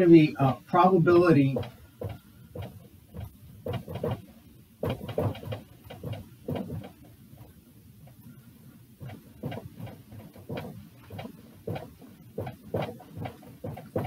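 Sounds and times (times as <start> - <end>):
marker scratching on whiteboard: 1.5 - 7.6.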